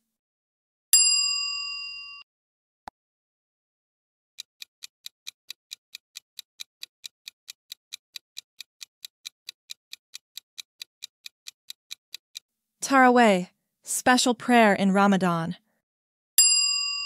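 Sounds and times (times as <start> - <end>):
clock ticking timer: 4.4 - 12.5.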